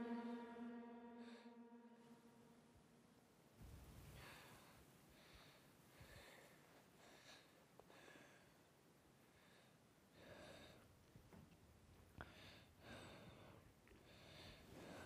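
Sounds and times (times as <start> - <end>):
person breathing slowly: 3.9 - 11.0, 12.2 - 15.0.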